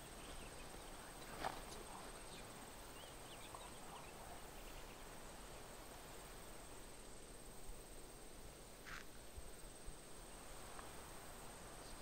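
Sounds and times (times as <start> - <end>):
distant bird chirps: 0.0 - 5.9
faint high-pitched whine: 0.0 - 12.0
faint hiss: 0.0 - 12.0.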